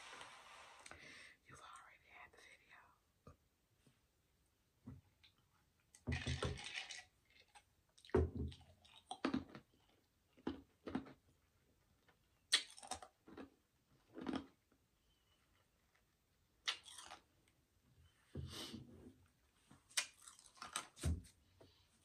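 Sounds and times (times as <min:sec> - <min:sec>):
ice crunched between teeth: 0:16.7 - 0:17.3.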